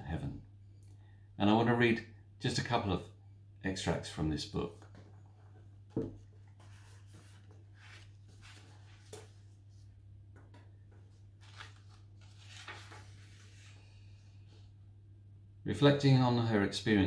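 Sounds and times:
book pages rustling: 0:04.8 - 0:14.7.

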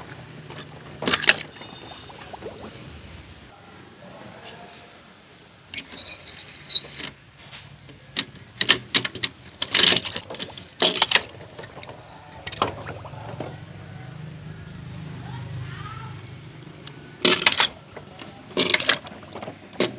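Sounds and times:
toys clicking and knocking: 0:08.1 - 0:12.8, 0:16.9 - 0:19.9.

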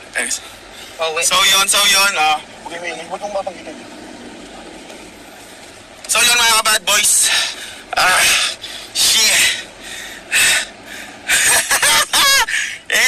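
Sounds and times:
man's voiced sounds: 0:06.1 - 0:09.7.

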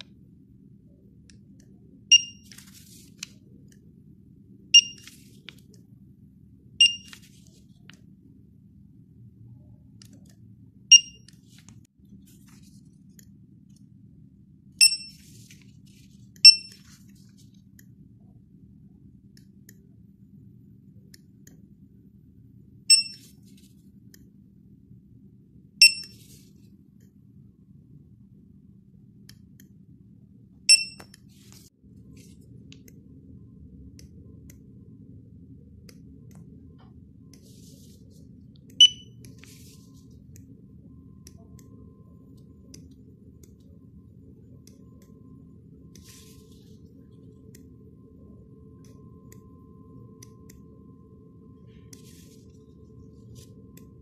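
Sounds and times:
faint low hum: 0:00.0 - 0:54.0
barcode scanner beeps: 0:02.1 - 0:02.7, 0:04.8 - 0:05.2, 0:06.8 - 0:07.3, 0:10.9 - 0:11.4, 0:14.8 - 0:15.2, 0:16.4 - 0:16.8, 0:22.9 - 0:23.4, 0:25.8 - 0:26.2, 0:30.6 - 0:31.3, 0:38.7 - 0:39.4.

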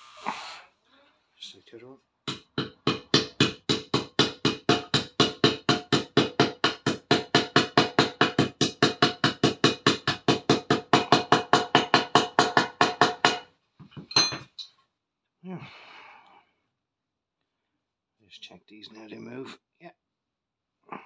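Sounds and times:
separate hammer knocks: 0:02.2 - 0:13.4
hammer tapping metal: 0:02.3 - 0:13.4.

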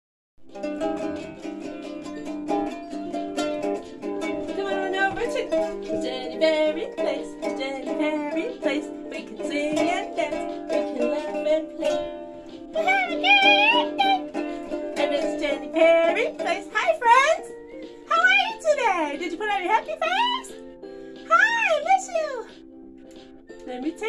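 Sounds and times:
toy ukulele strummed: 0:00.5 - 0:17.6
woman singing: 0:04.2 - 0:20.6, 0:21.2 - 0:22.6, 0:23.6 - 0:24.0.

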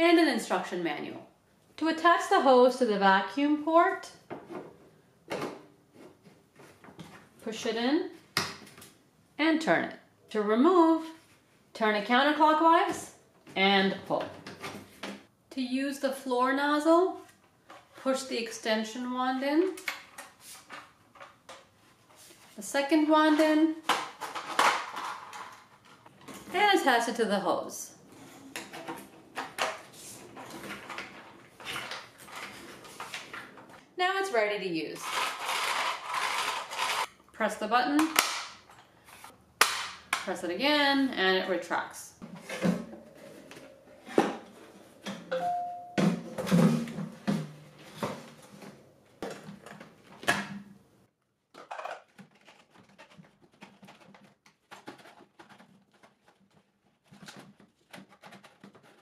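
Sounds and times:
brief ringing tone: 0:45.3 - 0:46.0
plastic knocks clicks and scrapes: 0:51.6 - 0:59.0.

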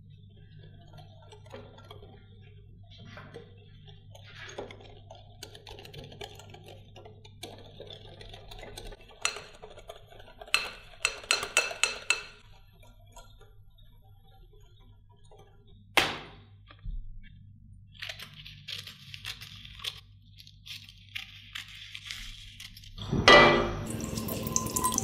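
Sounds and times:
whisk stirring thick chocolate: 0:00.0 - 0:15.8
whisk clinking against glass bowl: 0:10.4 - 0:12.4.

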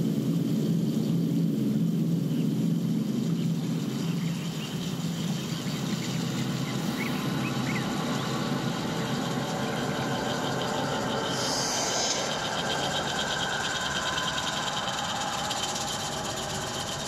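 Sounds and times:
low rumble and hum: 0:00.0 - 0:17.0
faint high chirps: 0:04.2 - 0:17.0
hiss: 0:10.6 - 0:17.0.

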